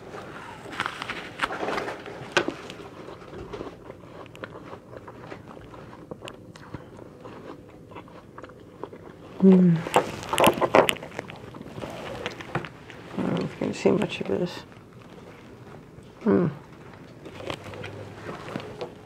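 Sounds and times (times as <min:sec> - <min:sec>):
crackly chewing: 0:00.0 - 0:19.0
apple crunching bites: 0:00.7 - 0:09.2, 0:09.8 - 0:12.8.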